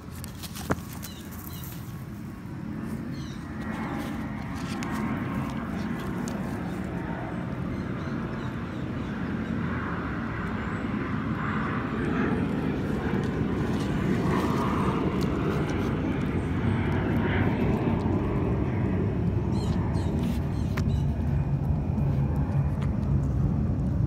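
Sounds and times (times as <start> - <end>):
low rumble: 11.8 - 24.0.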